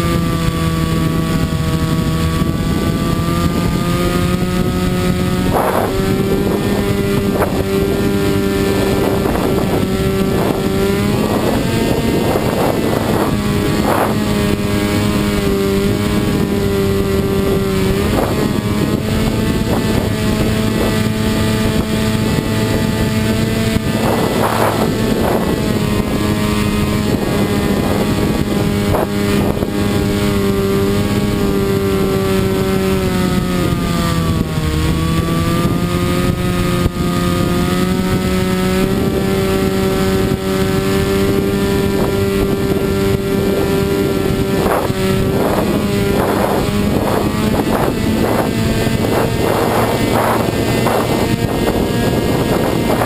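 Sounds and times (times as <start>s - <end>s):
motor and propeller running: 0.0s - 53.0s
wind buffeting microphone: 0.0s - 53.0s.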